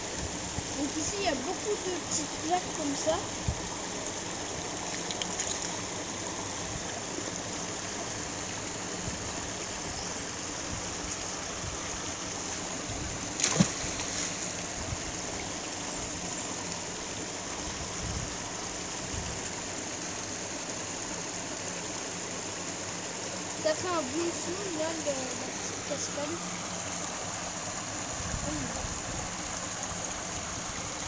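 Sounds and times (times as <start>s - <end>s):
small waterfall rushing: 0.0s - 31.0s
water splash: 13.2s - 14.7s.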